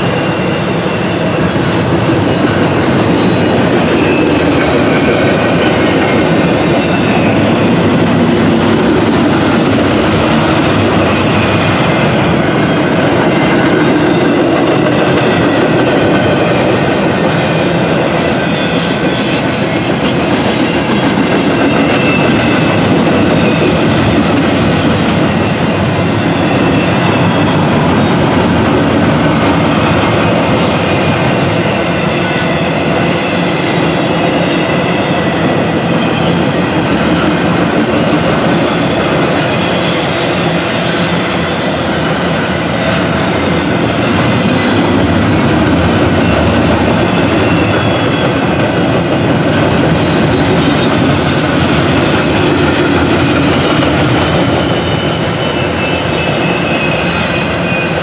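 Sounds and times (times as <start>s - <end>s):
freight train wheels rumbling: 0.0s - 58.0s
rhythmic clickety-clack: 0.0s - 58.0s
faint high wheel squeal: 46.2s - 48.5s, 54.0s - 58.0s.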